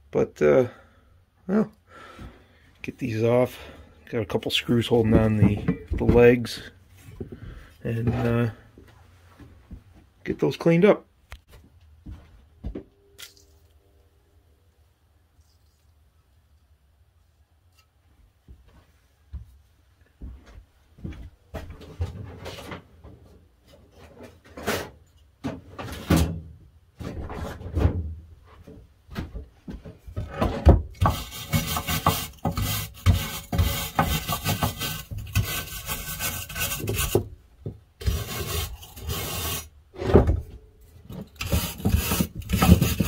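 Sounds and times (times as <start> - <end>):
wire brush scrubbing metal: 31.0 - 37.2, 38.0 - 39.7, 41.3 - 43.0.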